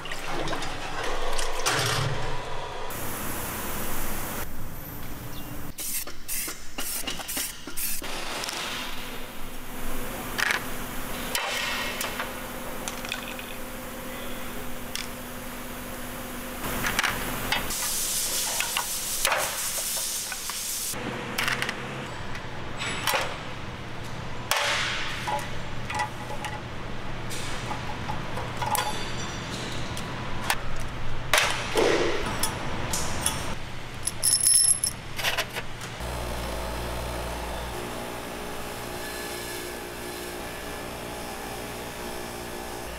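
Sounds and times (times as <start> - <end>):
metal valves clinking on a pile: 34.0 - 35.0
metal parts clinking and clattering: 34.0 - 35.6.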